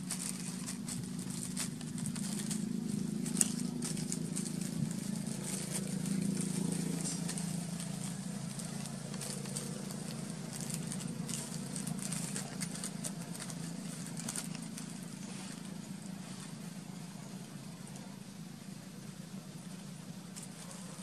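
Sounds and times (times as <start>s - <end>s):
plastic bag crinkling: 0.0s - 16.2s
steady low hum: 0.0s - 21.0s.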